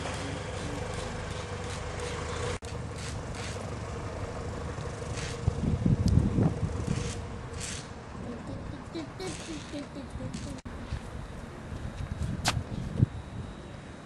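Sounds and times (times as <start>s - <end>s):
propeller plane engine droning: 0.0s - 14.0s
low thumps and rumbles: 4.2s - 7.6s.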